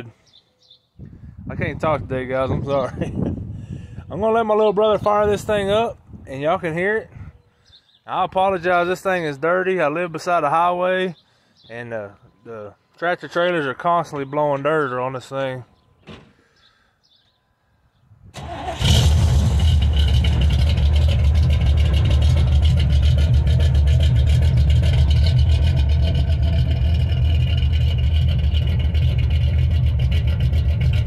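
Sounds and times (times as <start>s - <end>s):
car engine starting and idling: 18.4s - 31.0s.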